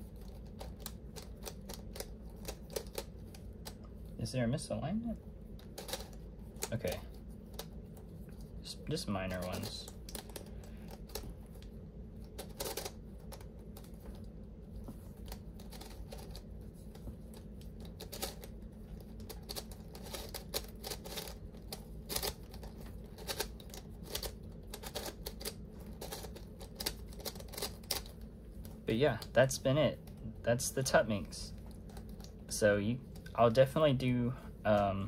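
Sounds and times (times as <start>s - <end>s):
plastic puzzle clacking: 5.6s - 7.8s, 12.2s - 14.2s, 17.3s - 28.2s.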